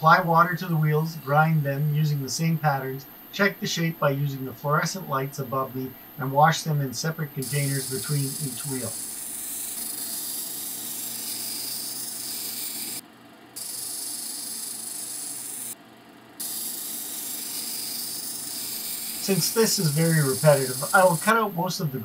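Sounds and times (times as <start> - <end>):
machine running: 0.0 - 13.0, 13.6 - 15.8, 16.4 - 22.0
stone grinding hiss: 7.3 - 13.0, 13.6 - 15.8, 16.4 - 21.6.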